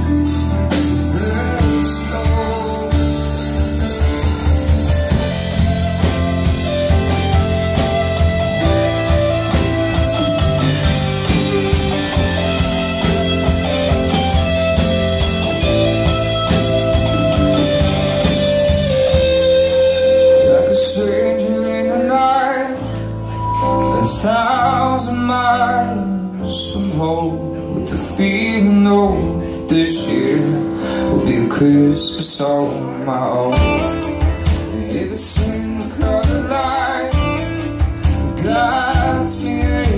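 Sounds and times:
live rock band playing: 0.0 - 39.9
lead guitar bending pitch: 2.3 - 25.3
drum beat: 2.5 - 19.5.

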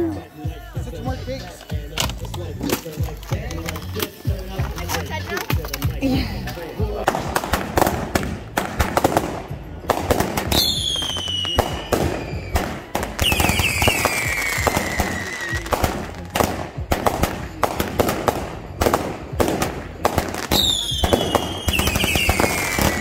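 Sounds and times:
fireworks bangs and crackling pops: 7.0 - 23.0
falling firework whistles: 10.5 - 16.5, 20.5 - 23.0.

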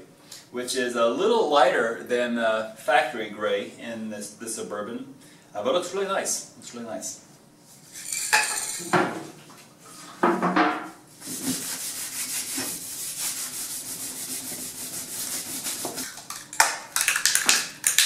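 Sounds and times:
rag rubbing on steel strip: 11.2 - 16.1.

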